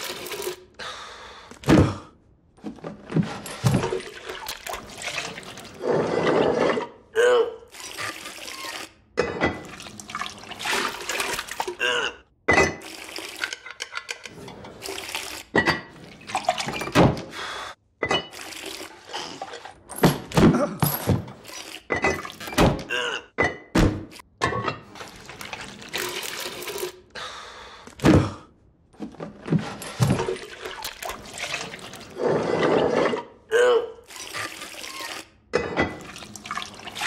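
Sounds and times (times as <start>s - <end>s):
liquid pouring and sloshing: 2.6s - 7.0s, 7.7s - 11.8s, 12.7s - 17.4s, 18.1s - 19.8s, 21.4s - 22.6s, 24.8s - 27.0s, 29.0s - 33.4s, 34.0s - 37.0s.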